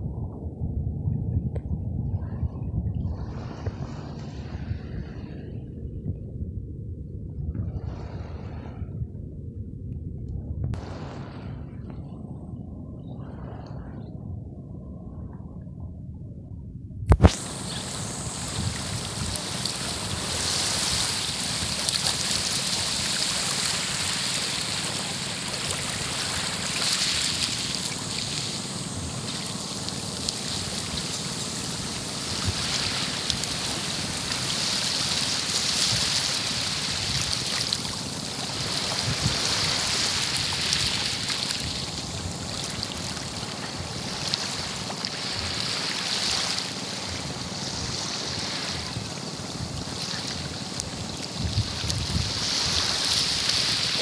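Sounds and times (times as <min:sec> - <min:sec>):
small waves lapping on beach: 0:02.2 - 0:05.8, 0:10.8 - 0:12.0, 0:17.1 - 0:54.0.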